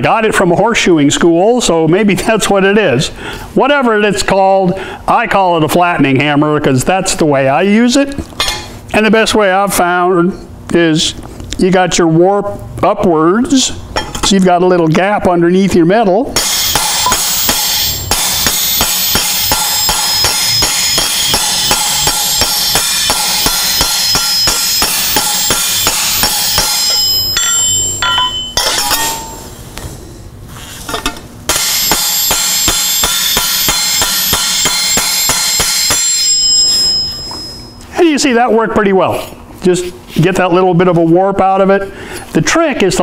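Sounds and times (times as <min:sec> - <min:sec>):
hammer striking steel plate on anvil: 0:16.4 - 0:29.6, 0:30.9 - 0:37.8.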